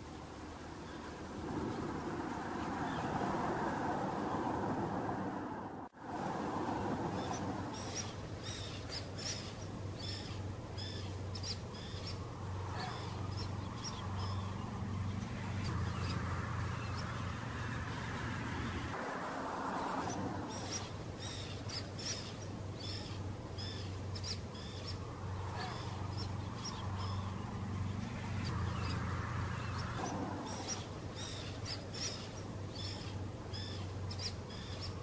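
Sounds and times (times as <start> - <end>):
birds chirping: 0.0 - 5.3, 6.5 - 19.0, 19.6 - 35.0.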